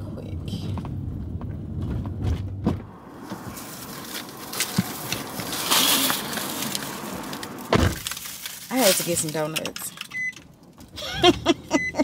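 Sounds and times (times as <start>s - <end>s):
low car cabin hum: 0.0s - 12.0s
paper bag rustling: 3.5s - 9.5s.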